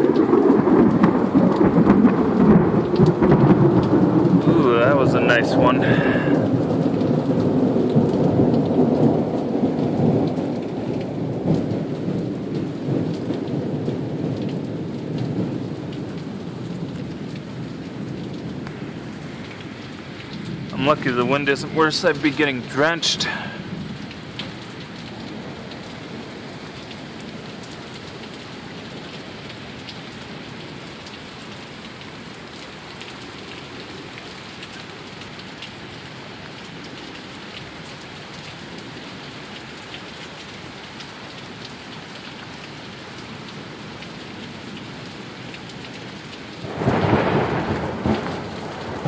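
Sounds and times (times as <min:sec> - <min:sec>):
thunder clap and rumble: 0:00.0 - 0:18.6, 0:20.2 - 0:26.3, 0:46.6 - 0:49.0
heavy rain hissing: 0:03.5 - 0:10.2, 0:18.0 - 0:27.6, 0:46.4 - 0:49.0.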